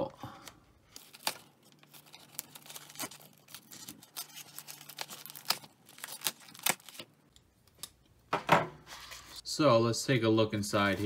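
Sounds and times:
plastic crackling and crinkling: 0.8 - 7.9.

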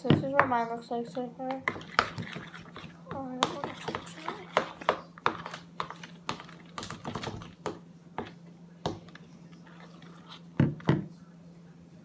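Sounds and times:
containers tapping: 1.5 - 9.2.

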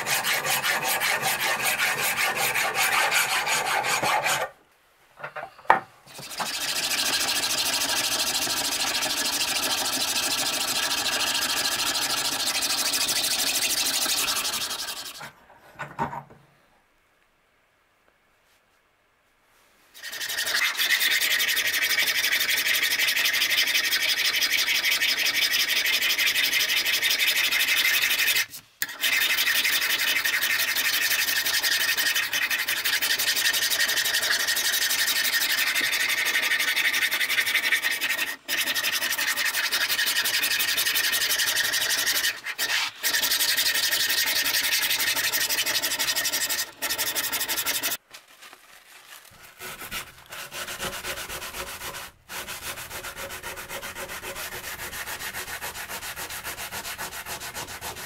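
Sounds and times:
file scraping cast iron: 0.0 - 4.5, 49.6 - 58.0.

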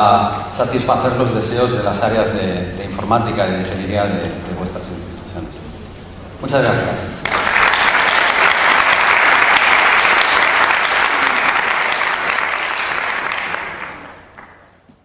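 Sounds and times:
audience applauding: 7.2 - 14.8.

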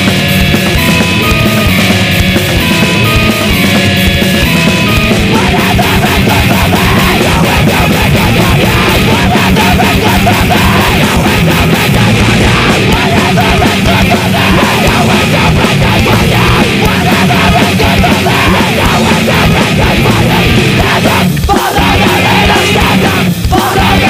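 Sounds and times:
distorted electric guitars: 0.0 - 24.0
hard-hit drums: 0.0 - 24.0.

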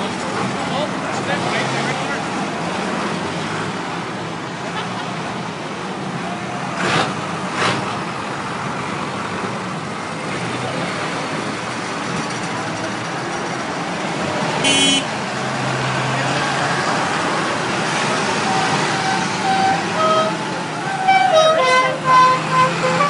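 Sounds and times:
tractor engines running: 0.0 - 23.0
horn toot: 14.6 - 15.1, 18.4 - 23.0.

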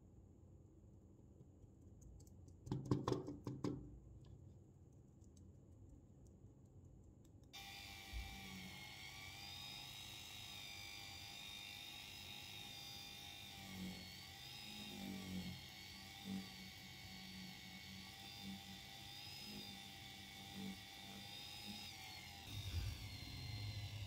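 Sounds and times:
rotary tool whining: 7.6 - 24.0.

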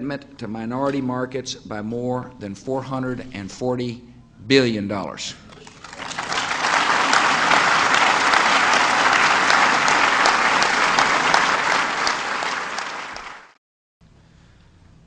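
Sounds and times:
audience applauding: 5.6 - 13.6.

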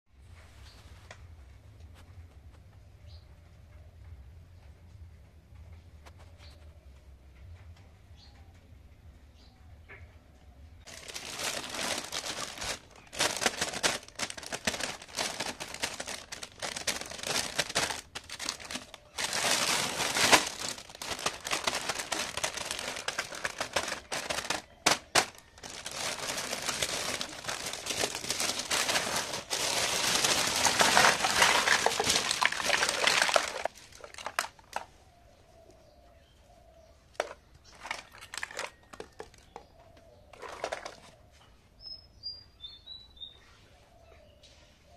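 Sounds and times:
plastic bag crinkling: 10.9 - 34.9, 37.2 - 39.6, 40.3 - 41.1.

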